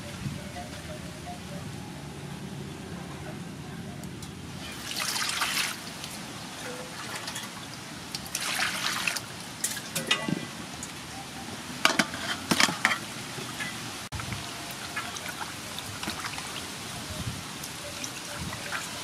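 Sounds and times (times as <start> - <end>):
water pouring into metal basin: 4.6 - 5.9, 6.9 - 10.2, 14.6 - 16.7
hands sloshing water: 4.6 - 6.2, 8.2 - 9.2
splashes: 4.6 - 11.1, 11.9 - 19.0.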